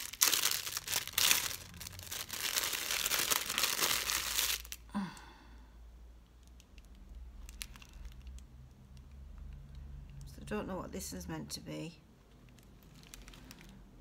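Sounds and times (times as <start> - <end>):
plastic packaging crinkling: 0.0 - 4.9, 6.5 - 8.4, 12.3 - 13.9.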